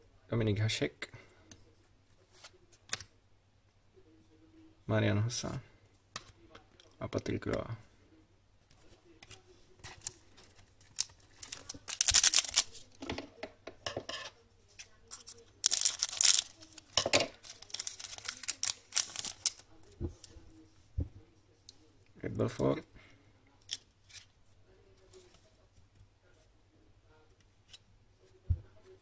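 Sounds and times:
paper rustling and clicking: 9.2s - 12.9s, 15.1s - 19.6s
wrapper ripping: 10.8s - 12.9s, 15.6s - 19.7s.

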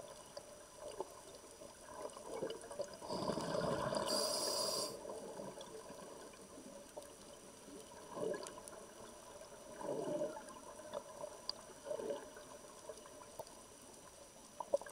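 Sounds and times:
underwater bubbles gurgling: 0.0s - 14.9s
faint hiss: 2.9s - 10.5s.

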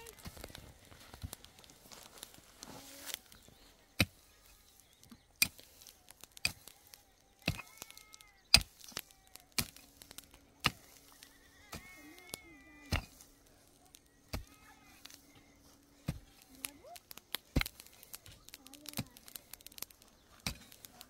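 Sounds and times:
pickaxe striking dry earth: 4.0s - 4.2s, 5.4s - 6.8s, 7.4s - 11.1s, 11.7s - 13.4s, 16.0s - 21.0s.

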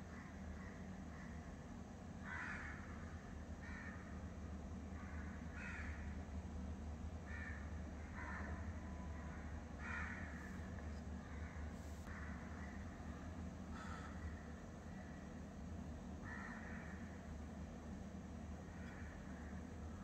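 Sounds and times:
steady low hum: 0.0s - 20.0s
crows cawing: 2.2s - 4.2s, 4.9s - 6.2s, 7.2s - 10.5s, 11.2s - 12.9s, 13.7s - 15.2s, 16.2s - 17.1s, 18.7s - 19.6s.

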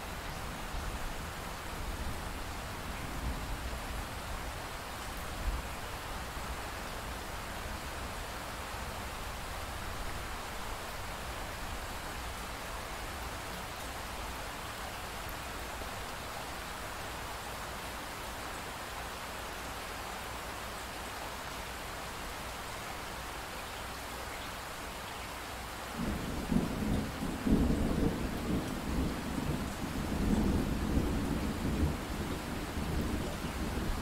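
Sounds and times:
pink noise hiss: 0.0s - 34.0s.

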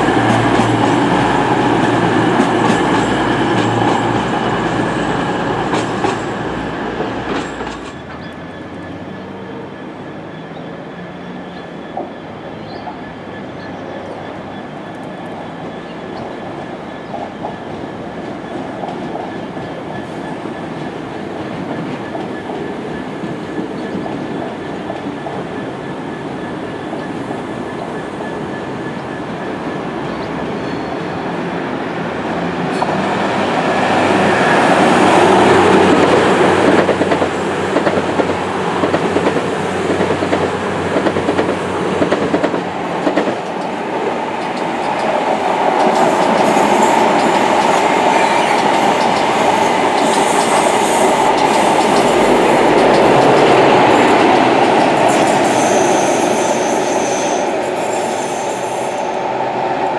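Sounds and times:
train wheel and rail rumble: 0.0s - 59.9s
wheels clacking over rail joints: 34.8s - 55.8s.

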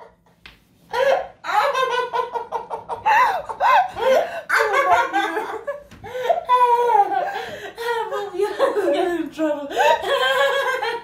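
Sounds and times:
women laughing: 0.9s - 11.0s.

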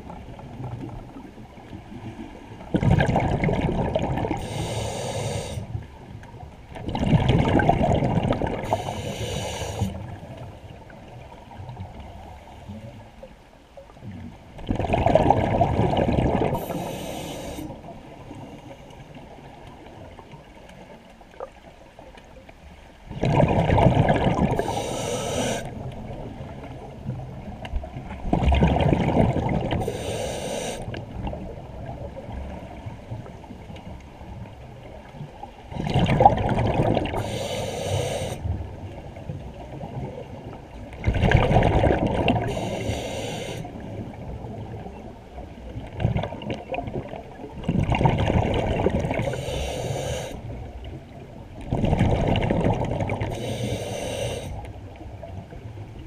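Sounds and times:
water noise: 0.0s - 56.0s
bubbling underwater: 2.7s - 4.4s, 6.8s - 8.7s, 14.6s - 16.8s, 23.1s - 24.7s, 27.9s - 29.8s, 35.7s - 37.2s, 41.0s - 42.5s, 45.9s - 49.3s, 51.6s - 53.4s
scuba regulator breathing: 4.4s - 5.8s, 8.6s - 10.1s, 16.5s - 19.1s, 24.5s - 25.8s, 29.8s - 31.0s, 37.2s - 38.5s, 42.4s - 43.8s, 49.2s - 50.6s, 53.3s - 54.7s.

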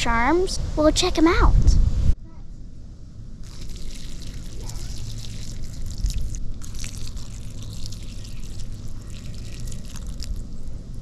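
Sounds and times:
water splashing onto clogs: 3.4s - 10.6s.

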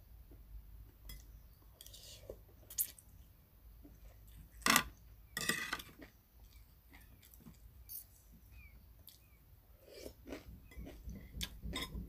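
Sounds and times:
cutlery clinking on plates: 4.7s - 6.0s.

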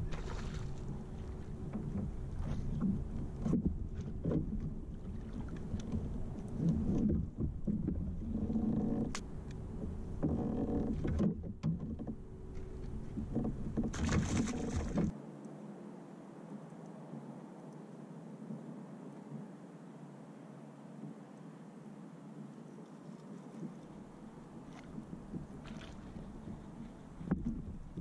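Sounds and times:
low rumble: 0.0s - 15.1s, 24.0s - 28.0s
knocks and clicks on plastic kayak: 1.6s - 4.8s, 5.5s - 12.2s, 27.2s - 28.0s.

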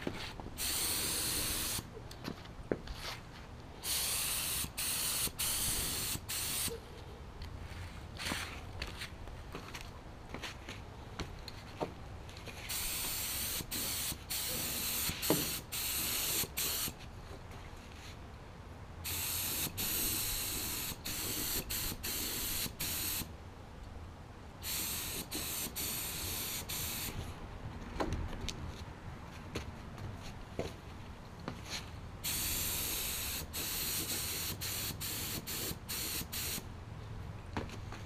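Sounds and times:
spray gun hissing: 0.6s - 1.9s, 3.8s - 6.8s, 12.7s - 17.0s, 19.0s - 23.3s, 24.6s - 27.2s, 32.2s - 36.6s.

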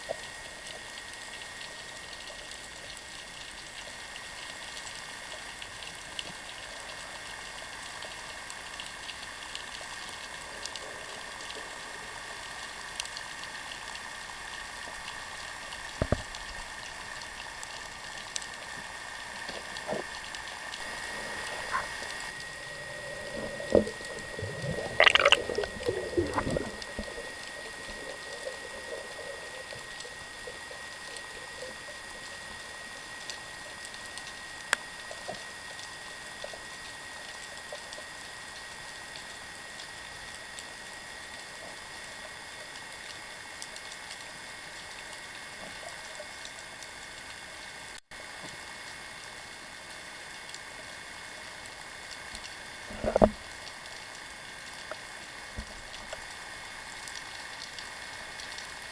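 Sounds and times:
faint clicks: 0.1s - 20.8s
underwater hiss: 20.8s - 34.2s
knocks and gurgling: 23.6s - 27.7s.

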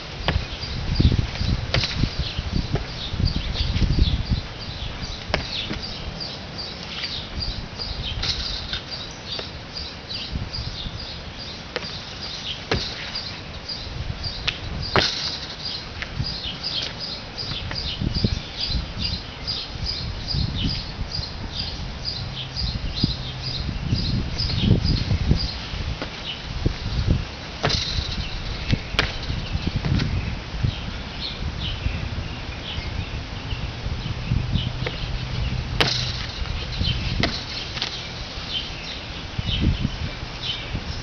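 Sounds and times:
small birds chirping: 0.0s - 41.0s
sharp knocks: 12.7s - 13.2s, 27.6s - 28.3s, 35.8s - 38.0s.

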